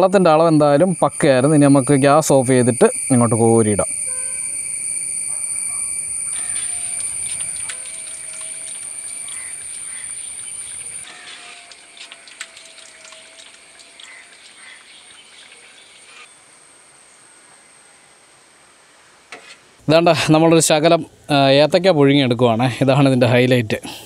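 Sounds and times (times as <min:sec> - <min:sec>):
water dribbling: 0:07.2 - 0:15.6.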